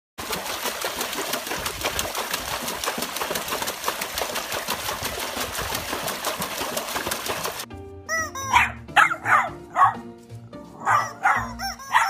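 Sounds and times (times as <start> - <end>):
dog splashing water in tub: 0.2 - 7.7.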